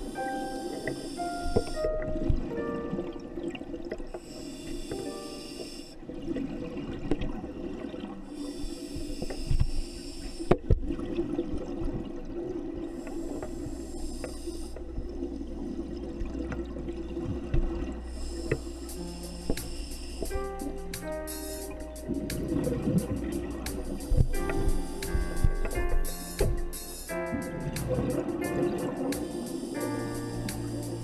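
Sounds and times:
regulator hissing inhalation: 0.0 - 1.9, 4.2 - 6.0, 13.0 - 14.8, 18.1 - 22.0, 24.0 - 27.6, 29.1 - 31.0.

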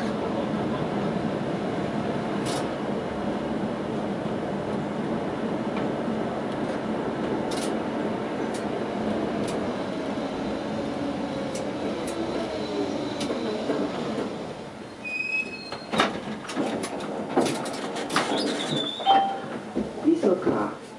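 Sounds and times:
tram rumbling on track: 0.0 - 20.9
high brake squeal: 14.9 - 16.0, 18.3 - 19.5
sharp clicks and knocks: 16.0 - 18.8.

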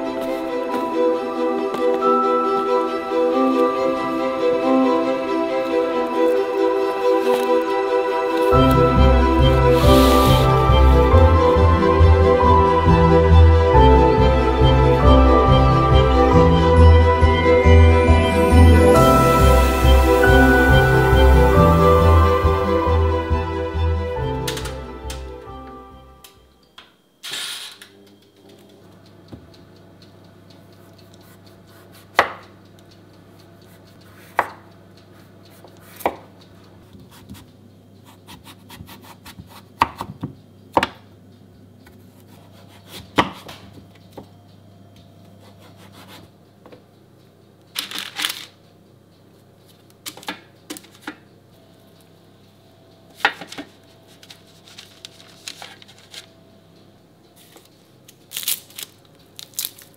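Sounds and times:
knife chopping on wooden board: 38.3 - 41.0.

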